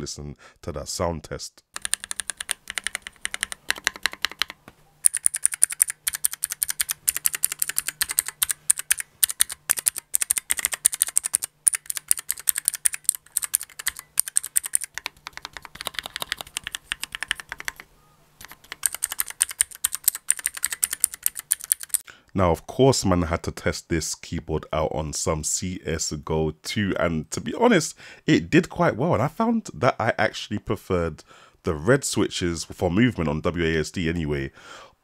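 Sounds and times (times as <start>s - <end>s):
fast clicky keyboard typing: 1.8s - 22.0s.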